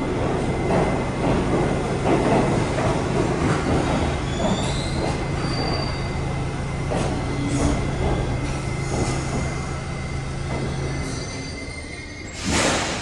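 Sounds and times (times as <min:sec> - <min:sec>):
train wheels clicking over rail joints: 0:00.2 - 0:06.0, 0:06.8 - 0:09.8
high-pitched wheel squeals: 0:04.3 - 0:06.3, 0:09.0 - 0:12.5.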